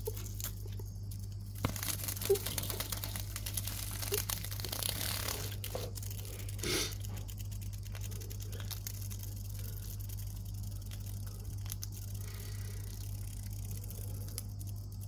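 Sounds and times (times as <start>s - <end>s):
monkey chewing insect crunches: 0.0s - 15.0s
steady low hum: 0.0s - 15.0s.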